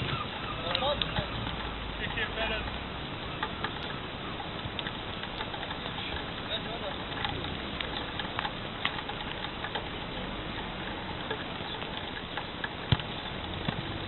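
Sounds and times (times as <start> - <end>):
steady background noise: 0.0 - 14.0
ball kicks: 12.9 - 13.1.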